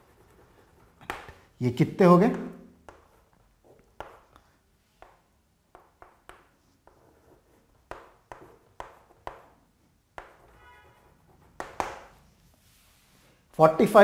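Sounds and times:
chalk tapping and scratching: 0.0s - 1.4s, 2.8s - 13.2s.

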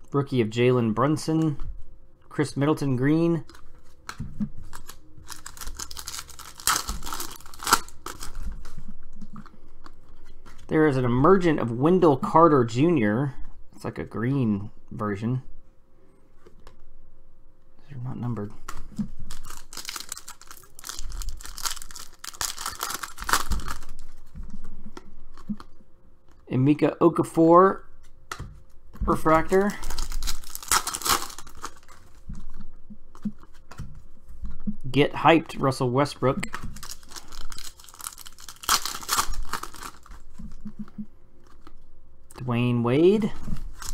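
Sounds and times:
foil wrapper tearing and crinkling: 4.6s - 8.8s, 19.3s - 24.2s, 29.3s - 32.2s, 36.8s - 40.4s, 43.7s - 43.9s.

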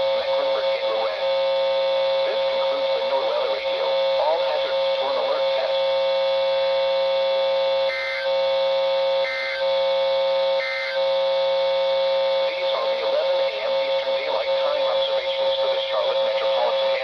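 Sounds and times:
buzzing radio hum: 0.0s - 17.0s
data bursts: 0.0s - 17.0s.

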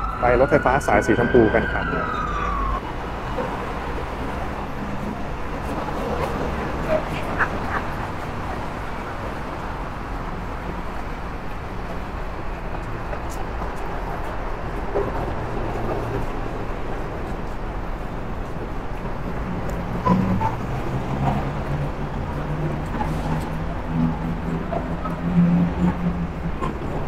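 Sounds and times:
city road traffic hum: 0.0s - 27.0s
faint voices: 5.0s - 9.7s.

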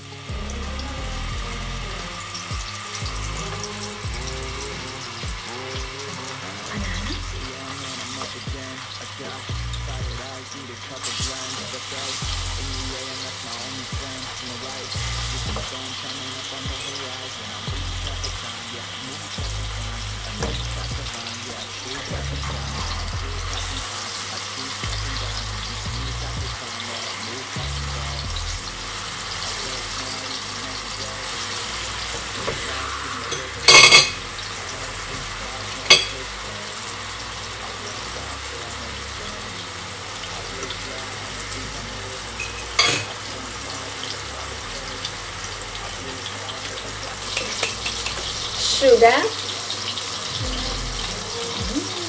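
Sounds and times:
bananas sizzling in a pan: 0.0s - 52.0s
faint background music: 0.0s - 52.0s
metal fork clinking: 47.4s - 48.3s.

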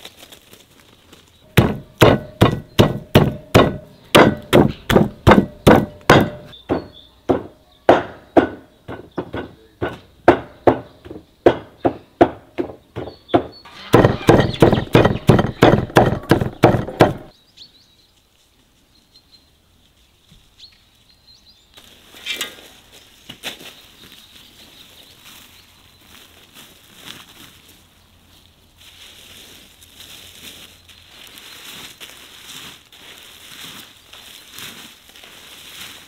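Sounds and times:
dry leaves rustling: 0.0s - 6.6s, 19.6s - 36.0s
sharp knocks or chops: 1.6s - 17.3s.

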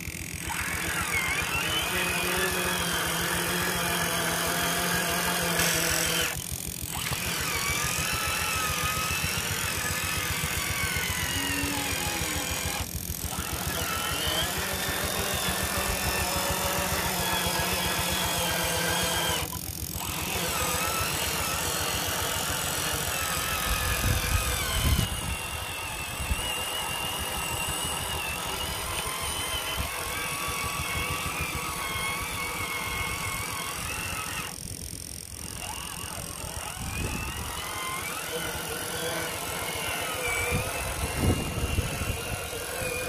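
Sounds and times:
gear chatter: 0.0s - 43.0s
toy truck motor whining: 0.0s - 43.0s.

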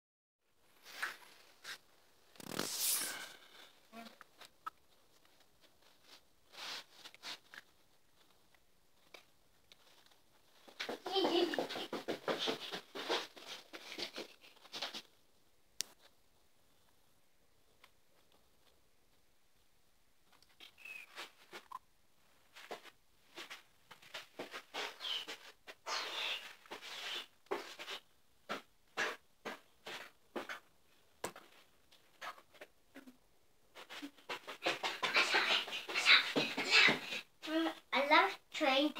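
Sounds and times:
soft rustles: 0.6s - 15.3s, 17.7s - 32.7s.

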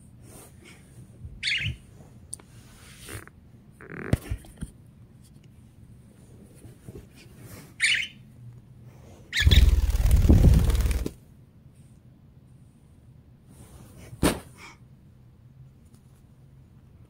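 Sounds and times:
budgie squawk: 1.4s - 1.8s.

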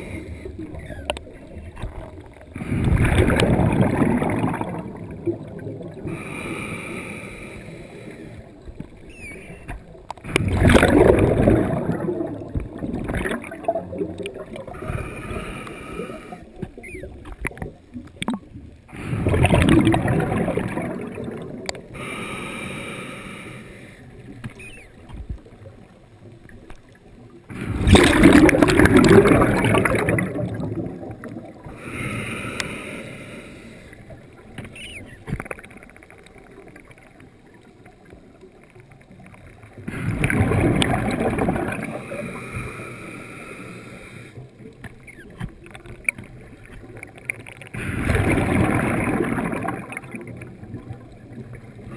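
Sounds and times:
gurgling exhaled bubbles: 0.0s - 22.5s, 27.5s - 33.2s, 38.6s - 43.0s, 44.6s - 51.9s.

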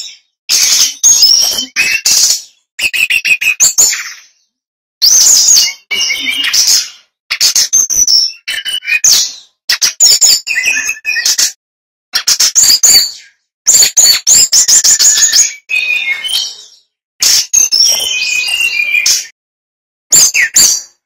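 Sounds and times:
bird singing: 12.6s - 16.9s, 17.6s - 19.3s, 20.1s - 21.0s.

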